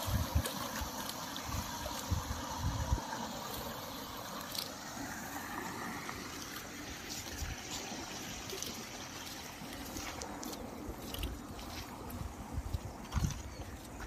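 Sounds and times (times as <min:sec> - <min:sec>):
water trickling: 0:00.0 - 0:14.0.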